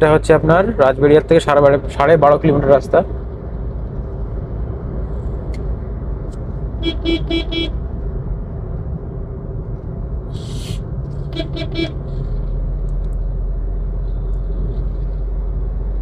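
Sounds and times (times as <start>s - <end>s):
car driving on highway: 0.0s - 16.0s
car horn beeping: 6.8s - 7.8s, 11.3s - 12.1s.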